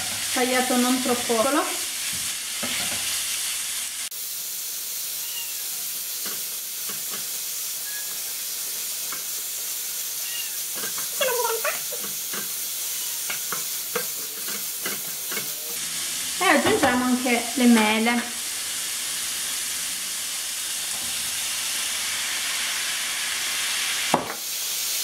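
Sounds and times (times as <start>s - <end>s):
food sizzling in a frying pan: 0.0s - 25.0s
cat meowing: 5.2s - 5.9s, 7.8s - 8.5s, 10.2s - 11.8s, 12.7s - 13.5s.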